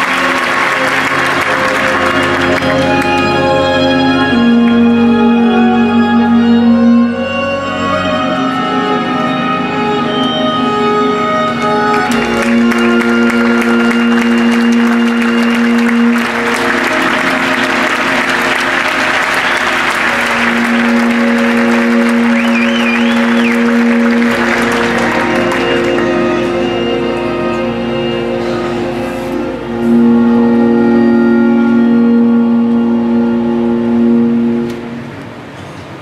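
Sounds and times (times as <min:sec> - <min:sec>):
audience applause: 0:00.0 - 0:04.8, 0:11.9 - 0:27.2
slow music with long held notes: 0:00.0 - 0:36.0.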